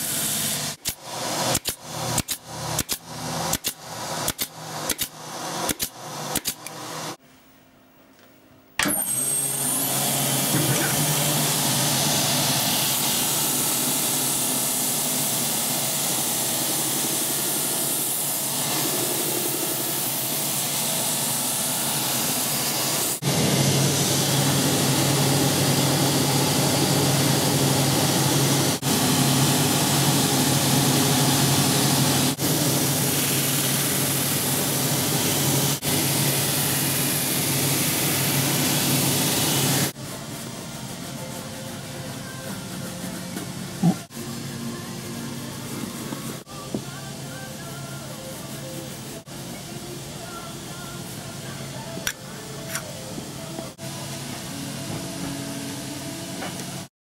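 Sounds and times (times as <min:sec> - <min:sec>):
buffing brushes whirring: 0:09.2 - 0:40.0.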